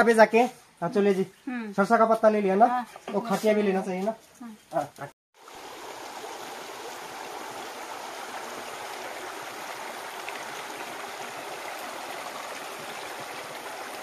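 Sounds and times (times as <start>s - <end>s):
stream running over stones: 5.4s - 14.0s.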